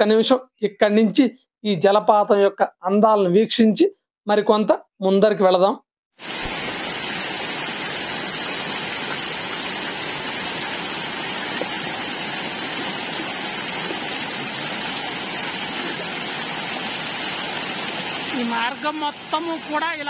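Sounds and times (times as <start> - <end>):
stream rushing over rocks: 6.2 - 20.0.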